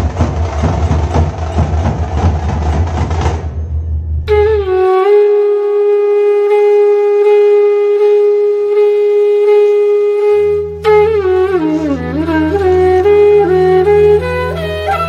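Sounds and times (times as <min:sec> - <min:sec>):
wind instrument high note: 0:04.2 - 0:15.0.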